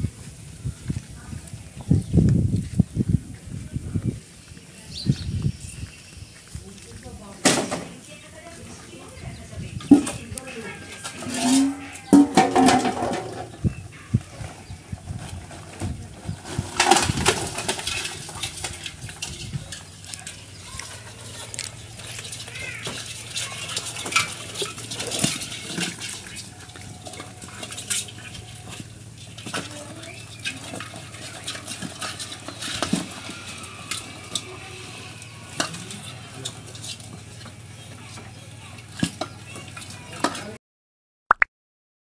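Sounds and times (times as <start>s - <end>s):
crabs scrabbling and clicking: 6.0s - 40.6s
knocks against basin: 11.0s - 13.6s.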